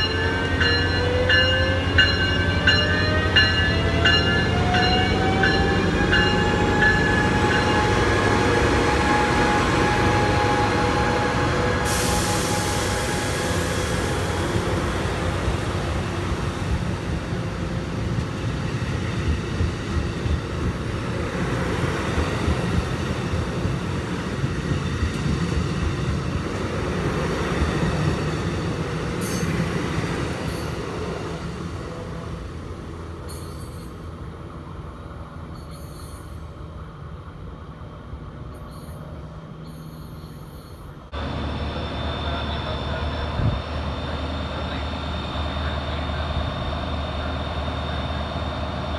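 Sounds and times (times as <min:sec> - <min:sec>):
passenger train rolling past: 0:00.0 - 0:48.9
diesel locomotive idling: 0:41.1 - 0:48.9.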